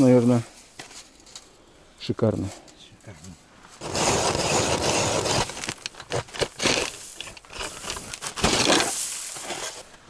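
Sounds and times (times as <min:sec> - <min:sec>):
ice auger crunching and scraping: 0:03.8 - 0:10.0.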